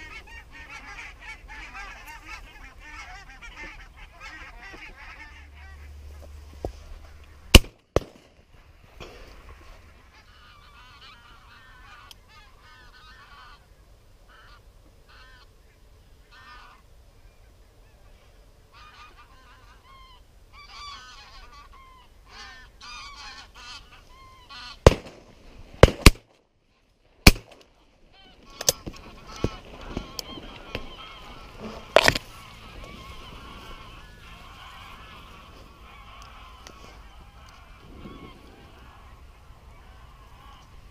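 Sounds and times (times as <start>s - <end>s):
geese honking: 0.0s - 7.7s, 9.5s - 13.7s, 14.3s - 16.9s, 17.8s - 25.0s, 28.0s - 40.9s
loud shotgun shots: 7.5s - 8.4s, 24.8s - 26.3s, 27.2s - 27.6s.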